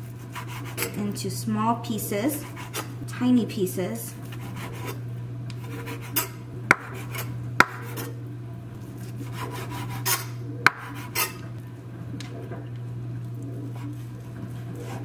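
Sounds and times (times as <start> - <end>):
knife sawing through bacon: 0.0 - 1.0, 2.3 - 3.0, 4.2 - 5.0, 5.6 - 8.1, 9.0 - 11.4, 14.7 - 15.0
steady low hum: 0.0 - 15.0.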